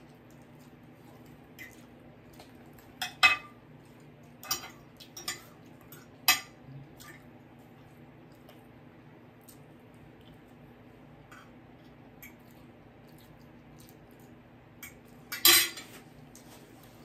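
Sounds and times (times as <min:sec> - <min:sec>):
cutlery clinking on a plate: 0:03.0 - 0:03.6, 0:14.8 - 0:16.0.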